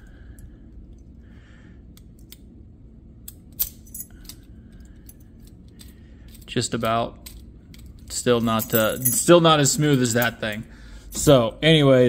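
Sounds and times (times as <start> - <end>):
keys clinking on ring: 3.2 - 11.4.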